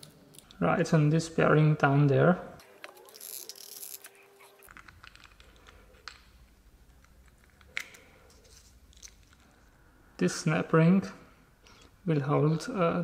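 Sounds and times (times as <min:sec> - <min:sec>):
metal parts clicking: 0:02.8 - 0:09.5.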